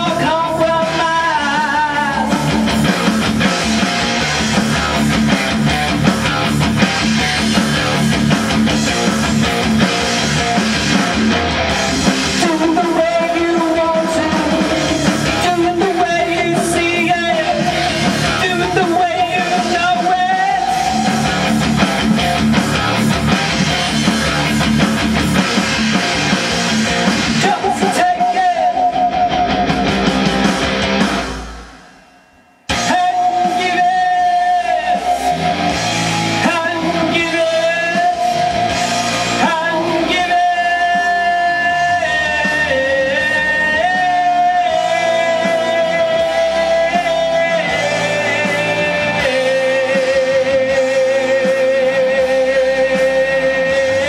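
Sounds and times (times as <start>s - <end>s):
man singing: 0.0s - 5.6s, 12.1s - 24.8s, 27.2s - 30.3s, 32.7s - 54.0s
backing track music: 0.0s - 54.0s.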